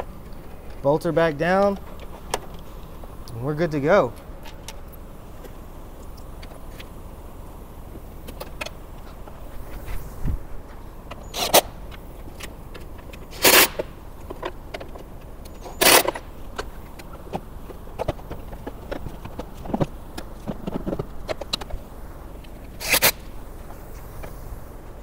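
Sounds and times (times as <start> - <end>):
handling clicks and clatter: 0.0 - 3.4, 10.7 - 24.4
cordless drill driving bolts: 15.5 - 16.2.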